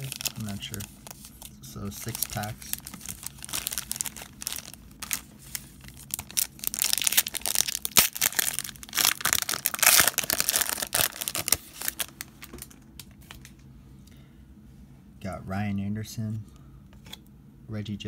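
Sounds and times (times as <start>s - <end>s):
foil wrapper crinkling: 0.0s - 13.5s.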